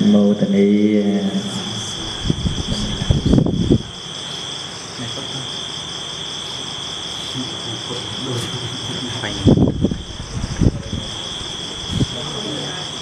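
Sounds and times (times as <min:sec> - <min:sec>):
insects chirping: 0:00.0 - 0:13.0
murmur of voices: 0:07.3 - 0:13.0.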